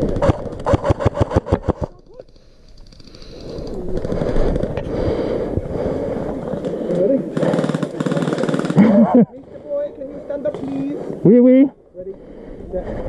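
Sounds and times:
airsoft rifle full-auto burst: 0.0 - 1.9, 7.4 - 9.1.

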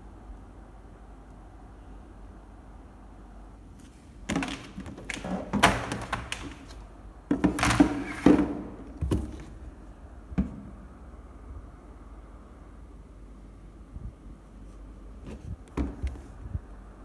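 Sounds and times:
plastic box knocks and scrapes: 4.3 - 9.6.

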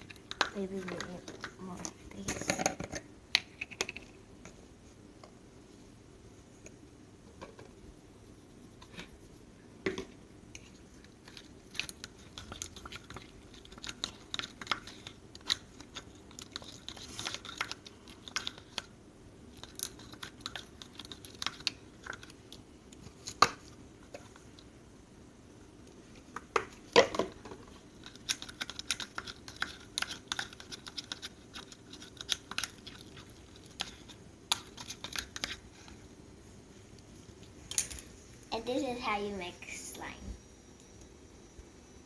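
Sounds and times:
sticky slime squelches: 27.7 - 36.0.

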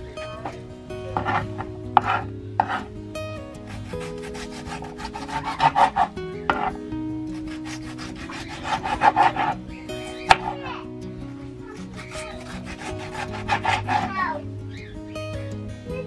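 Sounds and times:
soft background music: 0.0 - 16.0
knife chopping on cutting board: 2.0 - 2.9, 3.8 - 6.7, 7.4 - 9.5, 10.3 - 10.5, 11.9 - 14.0.

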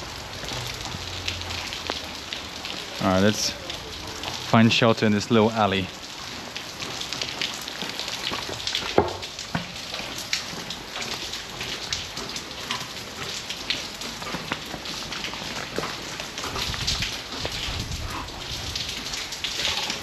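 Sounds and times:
rain falling: 0.0 - 20.0
sharp drips and splashes: 0.0 - 20.0.

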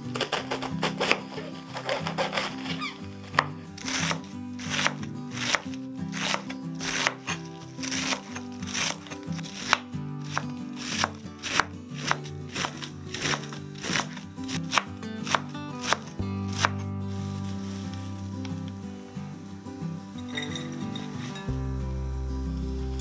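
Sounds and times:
background music: 0.0 - 23.0
knife chopping on cutting board: 0.2 - 2.7, 3.4 - 16.8.

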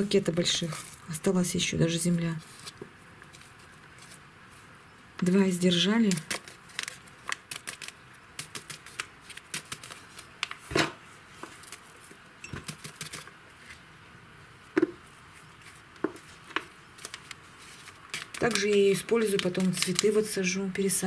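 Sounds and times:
soil scraping and rustling: 2.3 - 4.7, 15.0 - 20.6
plastic cups clicking: 16.0 - 20.4.

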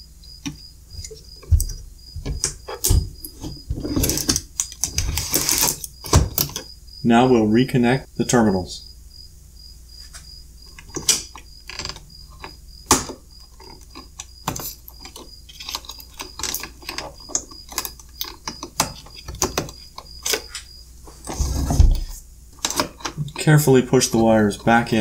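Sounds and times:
connectors clicking onto terminals: 4.0 - 6.7, 10.7 - 20.7.

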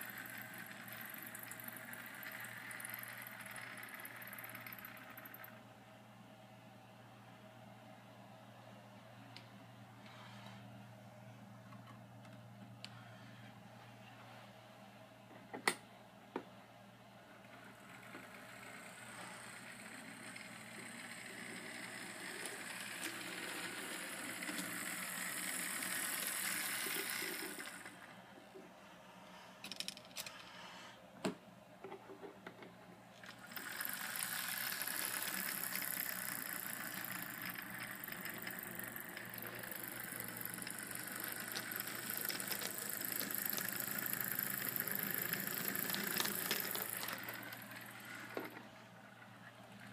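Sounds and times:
model locomotive rattling whir: 0.0 - 5.6, 17.4 - 28.2, 33.2 - 49.9.

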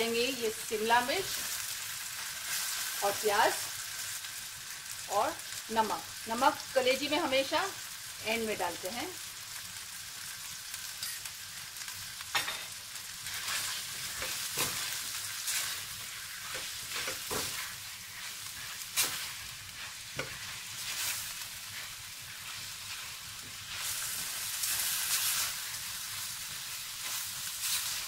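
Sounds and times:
food sizzling in oil in a wok: 0.0 - 28.0
spatula stirring and scraping: 13.2 - 28.0.

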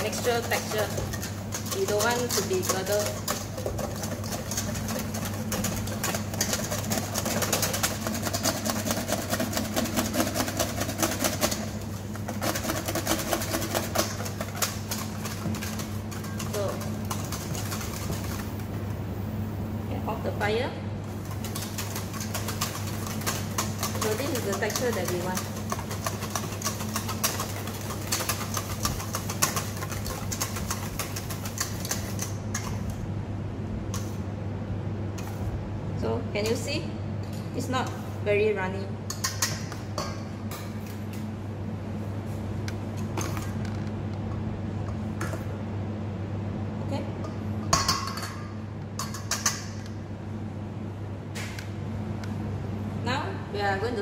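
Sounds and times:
whisk clicking in metal bowl: 0.0 - 18.5, 21.2 - 32.8.

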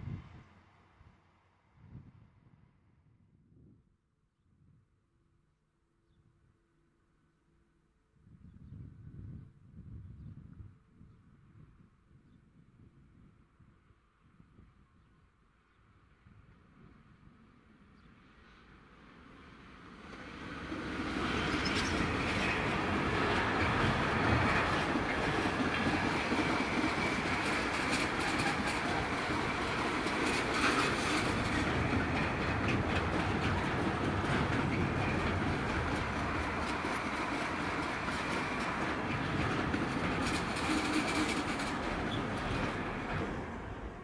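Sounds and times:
freight train passing: 16.0 - 44.0
wagon wheels clacking on rails: 20.6 - 43.4.

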